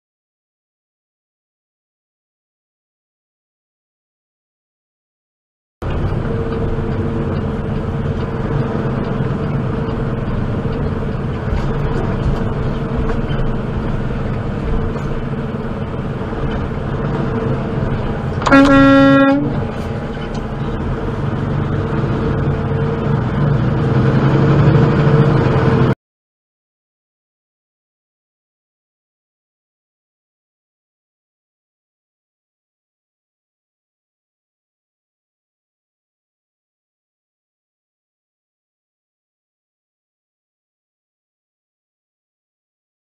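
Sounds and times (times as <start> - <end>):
truck engine and road drone: 5.8 - 26.0
horn blast: 18.4 - 19.8.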